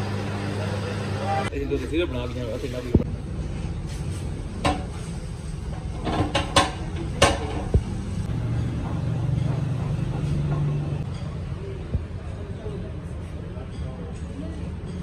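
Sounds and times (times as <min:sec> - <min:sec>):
sharp metallic knocks: 0:06.0 - 0:08.0.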